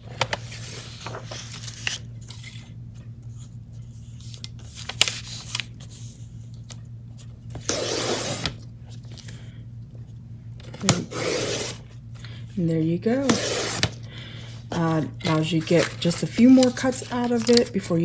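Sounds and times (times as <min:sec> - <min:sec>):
paper rustling and light clicks: 0:00.1 - 0:07.4, 0:15.4 - 0:17.8
paper trimmer slicing paper: 0:07.6 - 0:08.6, 0:10.8 - 0:11.8, 0:13.2 - 0:14.0.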